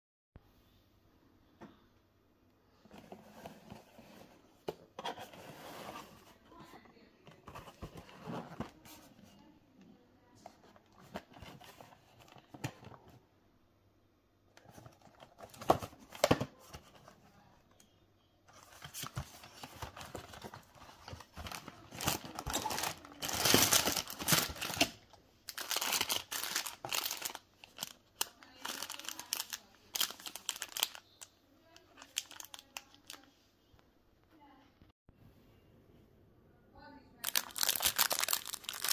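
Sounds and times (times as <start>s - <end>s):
plastic wrappers crinkling: 18.5s - 33.3s, 37.2s - 38.9s.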